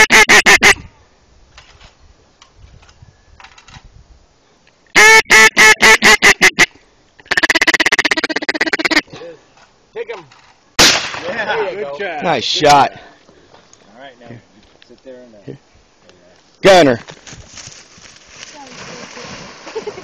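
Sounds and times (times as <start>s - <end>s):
chattering duck feed call: 0.0s - 0.8s, 5.0s - 9.1s
duck call quacks: 0.0s - 0.8s, 5.0s - 9.1s.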